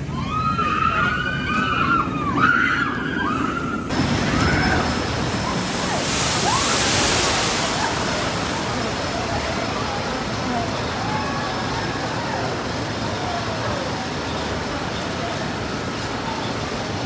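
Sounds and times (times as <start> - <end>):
roller coaster wheels squealing: 0.0 - 8.4
boat splashing into water: 3.8 - 16.8.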